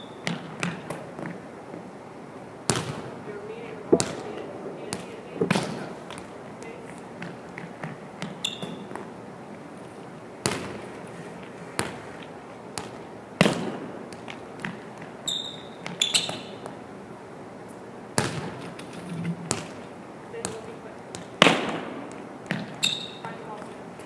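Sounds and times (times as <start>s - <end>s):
sneakers squeaking on court: 0.0s - 1.8s, 2.7s - 16.8s, 18.2s - 23.8s
volleyball smacking on gym floor: 0.2s - 1.4s, 2.6s - 3.2s, 3.9s - 9.1s, 10.4s - 10.9s, 11.8s - 16.8s, 18.2s - 23.4s.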